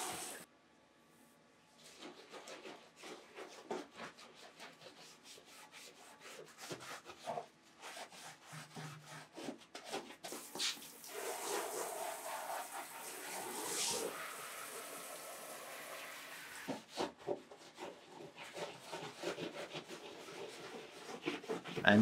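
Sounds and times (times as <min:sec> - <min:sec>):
shower head spraying water: 0:00.0 - 0:00.4, 0:10.6 - 0:16.4
hands scrubbing linoleum: 0:01.8 - 0:22.0.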